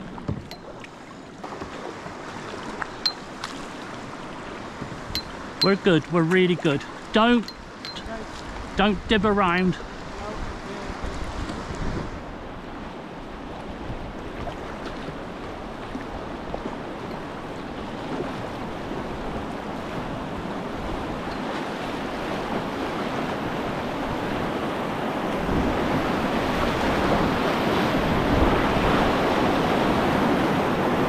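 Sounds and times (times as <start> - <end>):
white water rushing: 2.4 - 11.7.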